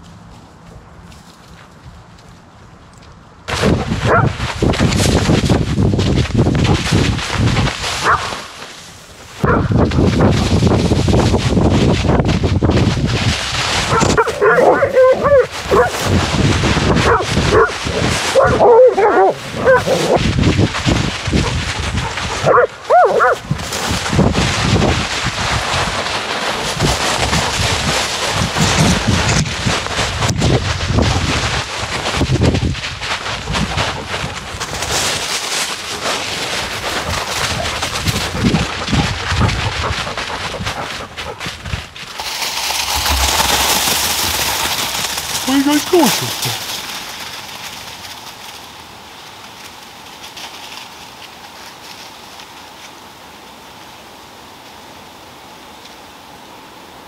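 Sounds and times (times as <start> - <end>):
dogs running through dry leaves: 0.0 - 2.8, 3.4 - 55.2.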